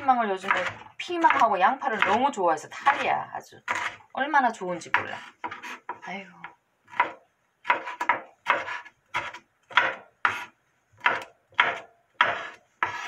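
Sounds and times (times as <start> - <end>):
knife slicing pepper on board: 6.9 - 13.0.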